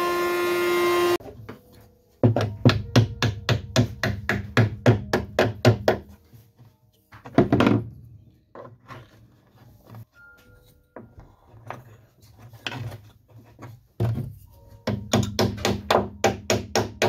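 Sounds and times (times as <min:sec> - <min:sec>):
hammer tapping wooden wedges: 0:02.2 - 0:06.2, 0:13.6 - 0:17.0.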